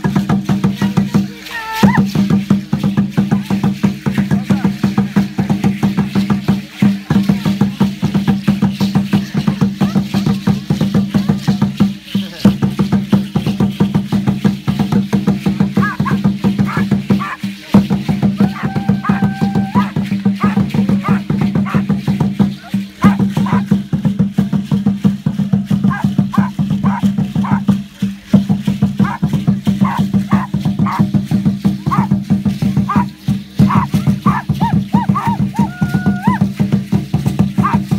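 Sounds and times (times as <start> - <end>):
fast drumbeat: 0.0 - 37.9
rattles shaking: 0.0 - 37.9
small dog whining: 15.8 - 17.4, 18.4 - 21.8, 23.0 - 23.6, 25.9 - 27.6, 29.8 - 31.0, 32.9 - 33.1, 33.7 - 36.4.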